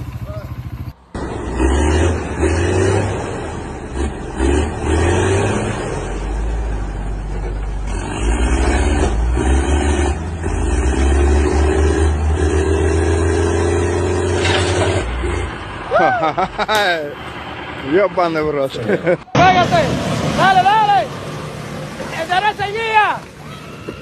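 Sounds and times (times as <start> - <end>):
tractor engine revving under load: 0.0 - 17.8.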